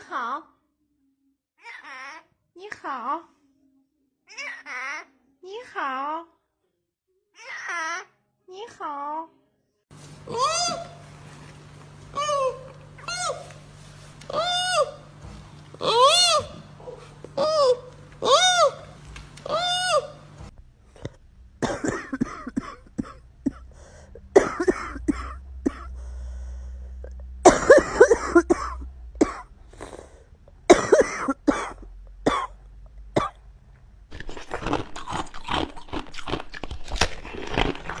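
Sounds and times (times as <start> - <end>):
person coughing: 21.6 - 26.0, 27.4 - 30.0, 30.7 - 32.6.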